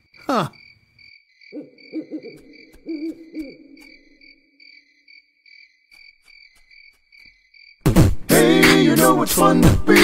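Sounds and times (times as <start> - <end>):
crickets chirping: 0.0 - 7.9
owl hooting: 1.5 - 4.4.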